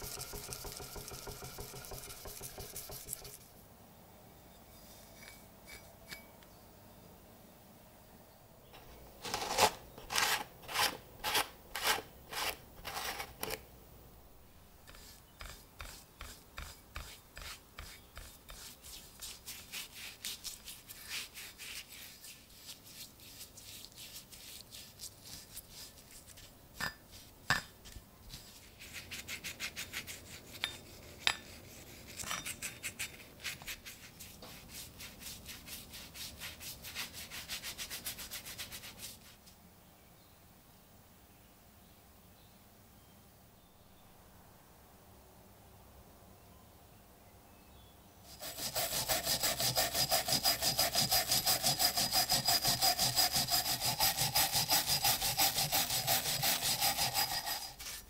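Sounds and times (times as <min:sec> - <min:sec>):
brush rubbing on steel axe head: 0:00.0 - 0:03.5, 0:14.9 - 0:27.4, 0:48.3 - 0:58.0.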